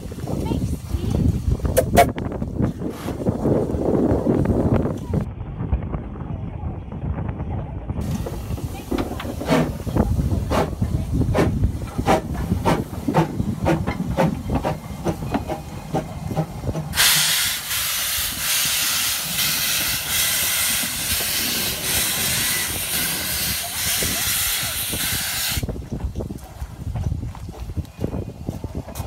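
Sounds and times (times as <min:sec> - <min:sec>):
low rumble with knocks: 0:04.6 - 0:17.0
steam locomotive hissing steam: 0:08.0 - 0:25.7.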